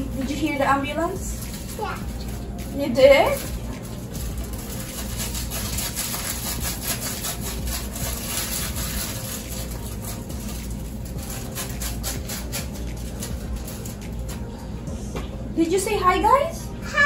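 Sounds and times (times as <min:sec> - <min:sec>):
irregular scraping and rubbing: 0:00.5 - 0:14.5.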